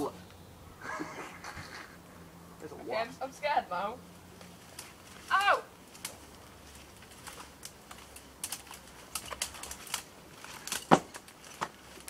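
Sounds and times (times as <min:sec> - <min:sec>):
twigs and leaves crackling: 0:02.9 - 0:12.0.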